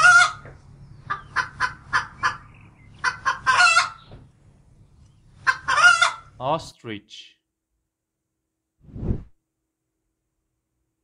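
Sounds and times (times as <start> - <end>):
hen cackling: 0.0 - 4.1, 5.4 - 6.4.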